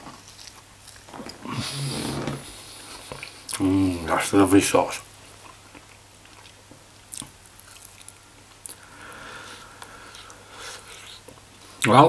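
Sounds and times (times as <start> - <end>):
person chewing meat: 0.0 - 1.8, 5.4 - 8.9.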